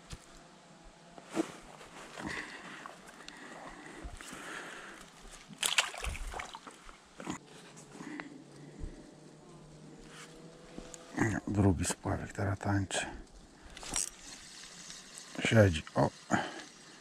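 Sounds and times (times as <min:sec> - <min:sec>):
rustling in reeds: 0:01.2 - 0:09.0, 0:13.3 - 0:17.0
fish splashing into water: 0:05.4 - 0:07.0.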